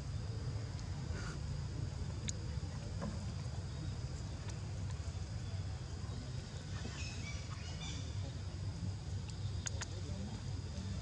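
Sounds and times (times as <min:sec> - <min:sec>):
faint clicks: 0:09.2 - 0:10.0.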